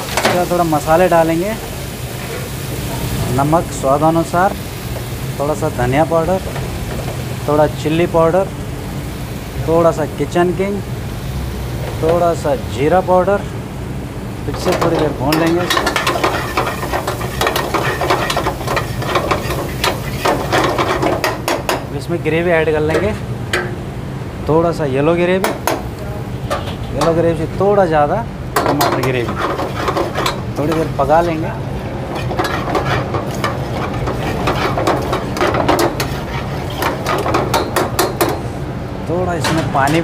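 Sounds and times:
food sizzling: 0:00.0 - 0:27.6, 0:28.4 - 0:38.7
metal ladle scraping a pan: 0:14.6 - 0:21.8, 0:28.8 - 0:31.4, 0:32.0 - 0:38.2.

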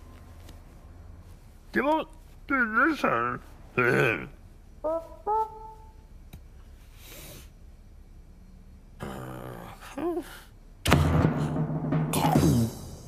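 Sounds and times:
loud music hit: 0:10.9 - 0:13.0.

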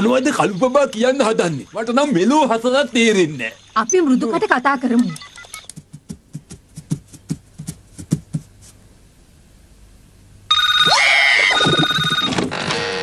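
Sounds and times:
loud electronic ringing tone: 0:10.5 - 0:13.0.

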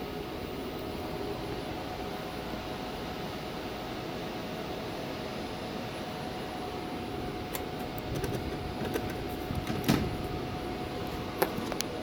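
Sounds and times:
air handler blower running: 0:00.0 - 0:12.0.

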